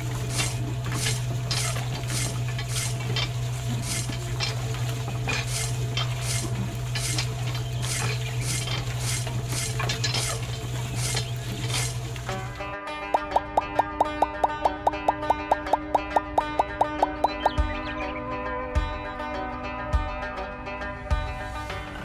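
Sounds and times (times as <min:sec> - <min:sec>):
roller scraping through sand: 0:00.0 - 0:12.6.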